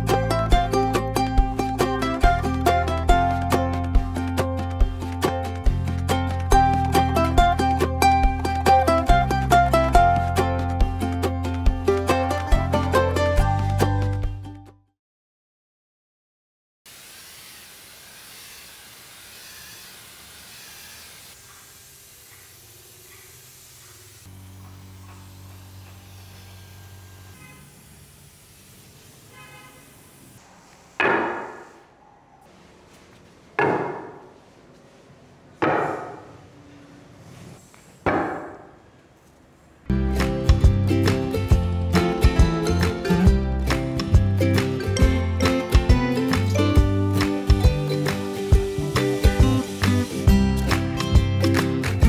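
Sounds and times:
paint spray gun hissing: 16.9s - 31.0s, 48.0s - 50.7s.

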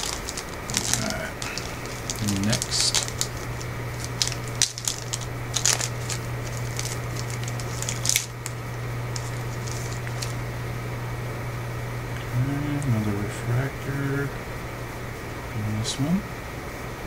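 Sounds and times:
cards rustling and clicking: 0.0s - 10.4s
wrapper crinkling and tearing: 0.0s - 10.4s
steady low hum: 0.0s - 17.0s.

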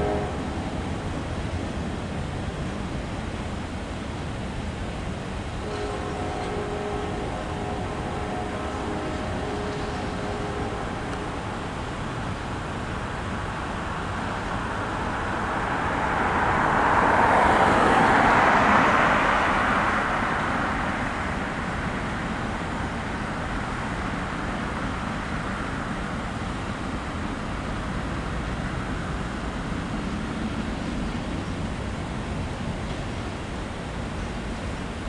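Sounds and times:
freight train rumbling past: 0.0s - 35.0s
car passing by: 13.9s - 25.0s.

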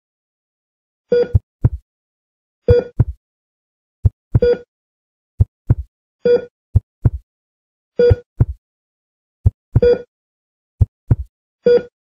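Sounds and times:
heart monitor beep: 1.1s - 1.8s, 2.7s - 3.2s, 4.0s - 4.7s, 5.4s - 7.2s, 8.0s - 8.6s, 9.4s - 10.1s, 10.8s - 12.0s
heartbeat thumps: 1.3s - 1.8s, 2.7s - 3.2s, 4.0s - 4.5s, 5.4s - 5.9s, 6.8s - 7.2s, 8.1s - 8.6s, 9.4s - 10.0s, 10.8s - 11.3s.

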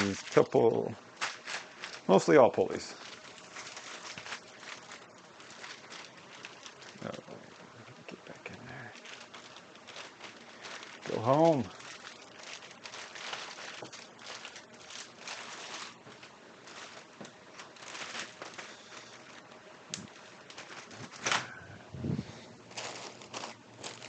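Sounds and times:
plastic bags crinkling: 0.0s - 24.0s.

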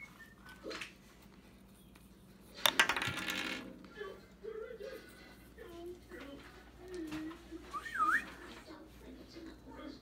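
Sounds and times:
small object clattering on surface: 2.6s - 3.7s.

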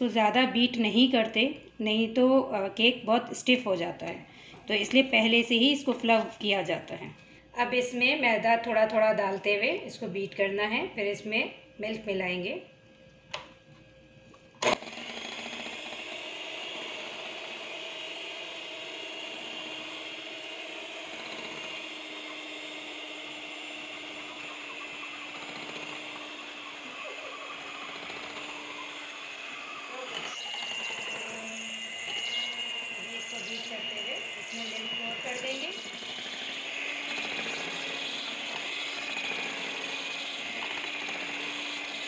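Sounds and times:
electric hand mixer whining: 14.6s - 42.0s.

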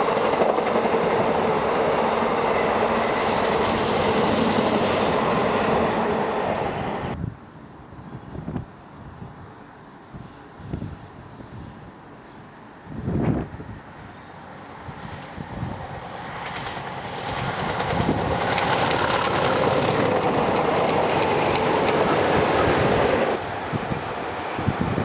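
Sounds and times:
train wheel clatter: 0.0s - 1.5s, 15.1s - 23.4s
diesel locomotive engines: 0.0s - 25.0s.

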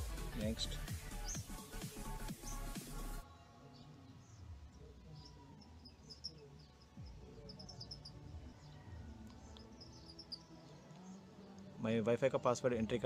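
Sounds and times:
faint bird chirps: 3.2s - 11.8s.

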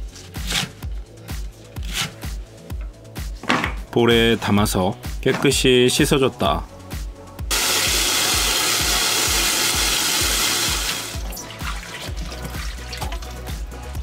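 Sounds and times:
water running into steel bowl: 7.5s - 13.5s.

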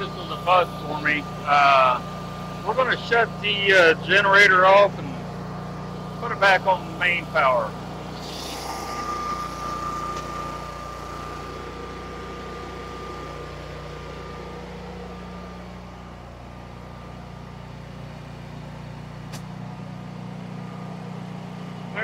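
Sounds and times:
generator engine running: 0.0s - 22.0s
high whine: 0.0s - 22.0s
sharp click: 19.3s - 19.6s.

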